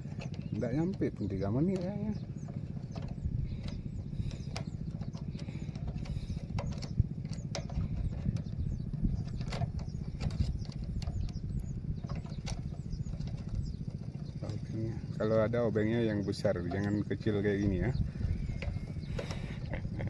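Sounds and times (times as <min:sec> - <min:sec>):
birds chirping: 0:00.0 - 0:20.0
small engine running: 0:00.0 - 0:20.0.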